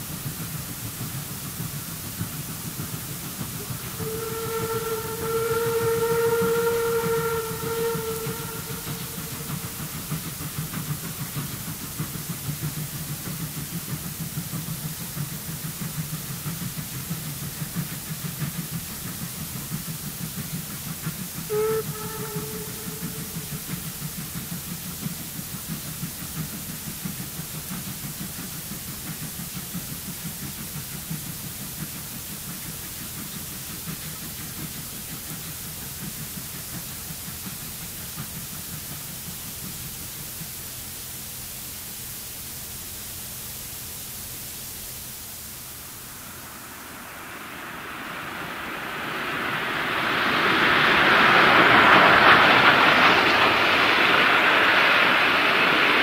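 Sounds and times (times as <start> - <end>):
steam locomotive chuffing: 0.0 - 56.0
steam locomotive roar: 0.0 - 56.0
film soundtrack hiss: 31.5 - 56.0.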